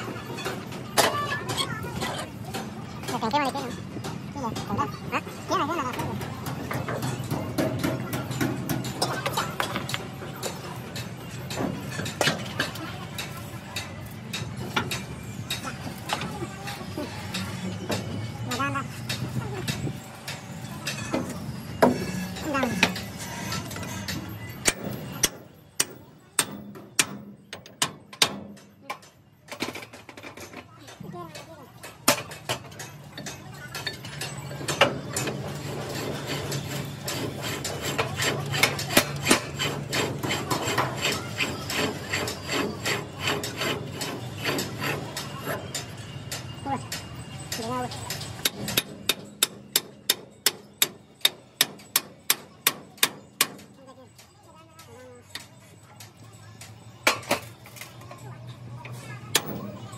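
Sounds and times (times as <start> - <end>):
hammer striking metal: 6.1 - 29.1, 32.1 - 54.3
hammer striking steel bar: 24.6 - 29.0, 48.4 - 53.8.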